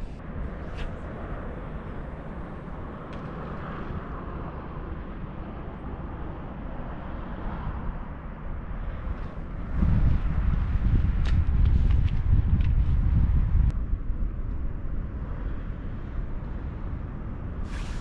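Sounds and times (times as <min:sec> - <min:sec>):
rushing hiss: 0:17.6 - 0:18.0.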